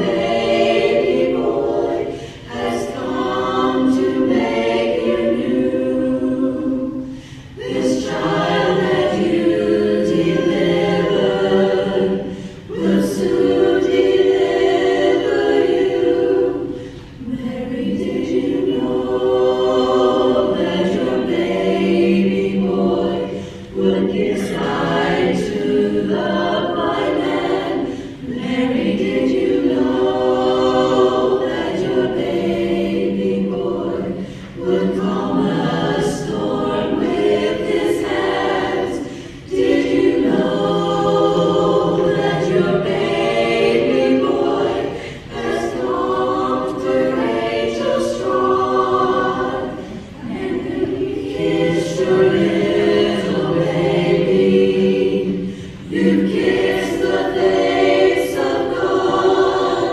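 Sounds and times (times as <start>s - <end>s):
women's choir singing: 0.0s - 59.9s
singers breathing: 2.0s - 2.6s, 7.0s - 7.6s, 12.2s - 12.7s, 16.7s - 17.2s, 23.3s - 23.8s, 27.8s - 28.3s, 34.2s - 34.6s, 39.0s - 39.5s, 44.8s - 45.4s, 49.7s - 50.2s, 55.4s - 55.9s.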